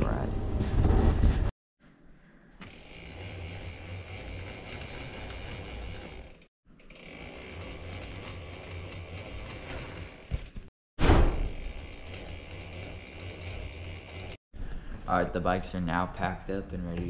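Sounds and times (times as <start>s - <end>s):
bike chain ratcheting whir: 2.6s - 10.6s, 11.3s - 14.4s.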